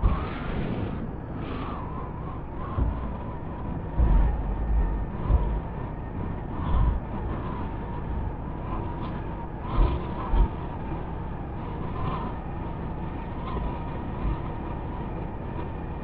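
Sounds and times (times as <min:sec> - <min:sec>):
vehicle road noise: 0:00.0 - 0:16.0
wind buffeting microphone: 0:00.0 - 0:16.0.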